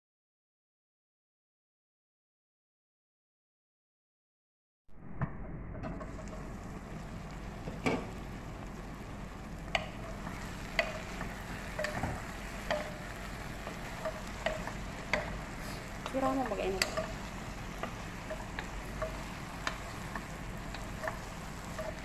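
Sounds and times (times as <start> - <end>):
food sizzling: 5.0 - 22.0
spoon knocking and scraping pot: 9.8 - 22.0.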